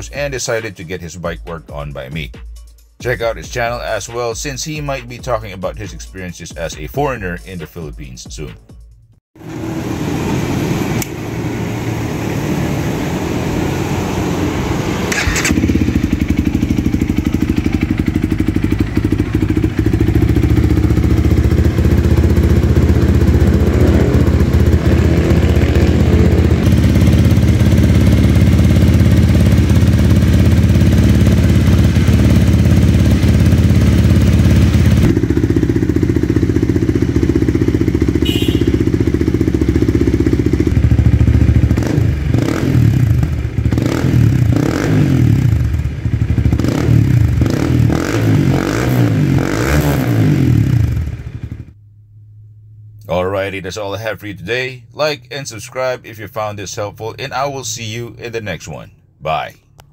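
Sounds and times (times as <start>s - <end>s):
motorcycle engine idling: 15.1s - 48.1s, 50.5s - 53.0s.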